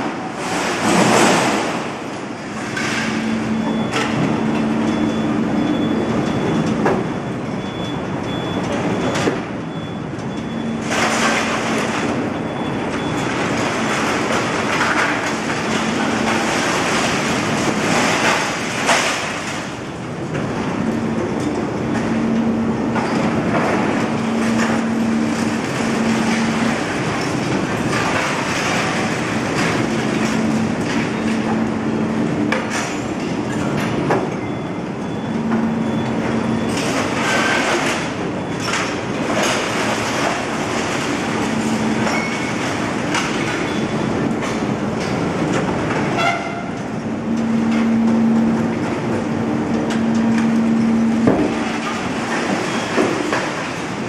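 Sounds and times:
crane metallic rumble: 0.0 - 54.0
low motor hum: 20.0 - 32.6, 39.2 - 54.0.

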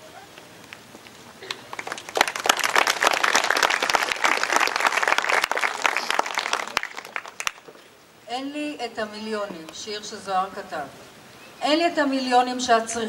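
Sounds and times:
audience applauding: 1.4 - 7.8.

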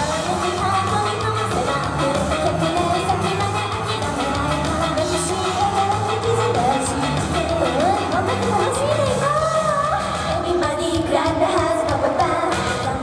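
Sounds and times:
steady drum beat: 0.0 - 10.4
women singing pop song: 0.0 - 13.0.

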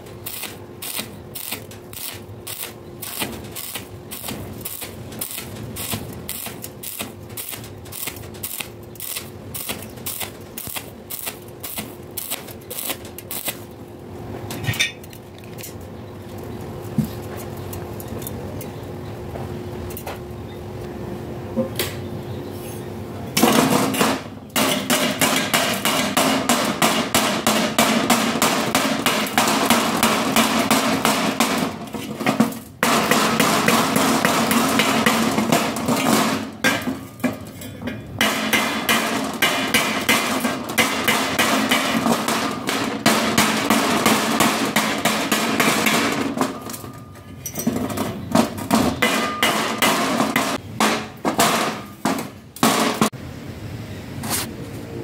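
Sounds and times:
chipping hammer tapping steel: 38.2 - 47.6.

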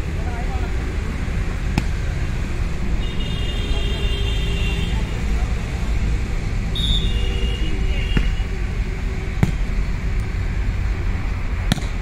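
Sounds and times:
volleyball strikes: 1.7 - 2.1, 8.1 - 8.5, 9.4 - 9.8, 11.6 - 12.0
referee's whistle blast: 6.7 - 7.3.

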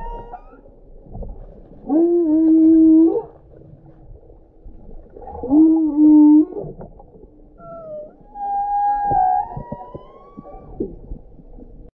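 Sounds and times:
whale moans: 0.0 - 0.7, 1.8 - 3.4, 5.2 - 6.8, 7.5 - 11.0
faint whale calls: 0.0 - 0.8, 1.8 - 3.4, 5.2 - 6.8, 7.5 - 11.2.

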